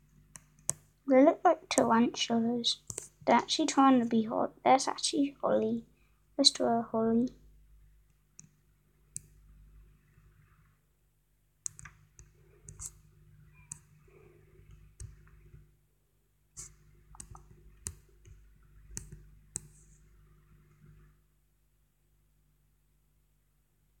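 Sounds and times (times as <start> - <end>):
fingertip tapping on touchscreen: 0.3 - 0.9, 2.8 - 3.1, 11.6 - 13.0, 14.6 - 15.6, 16.6 - 20.0.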